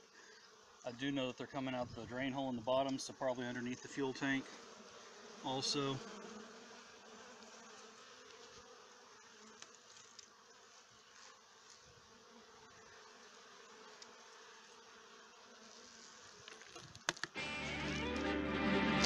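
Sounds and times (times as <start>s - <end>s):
bees humming: 3.6s - 10.2s, 17.4s - 19.0s.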